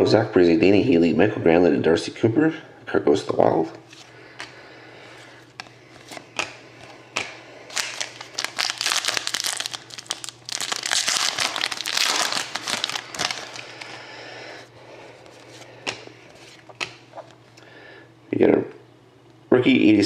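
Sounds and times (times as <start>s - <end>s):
plastic wrapper crinkling: 7.2s - 14.0s.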